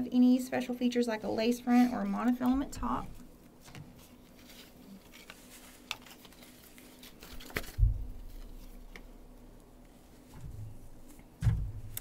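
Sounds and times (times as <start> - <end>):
wig rustling and handling: 2.0 - 11.3
dull thump: 7.8 - 8.2, 11.4 - 11.9.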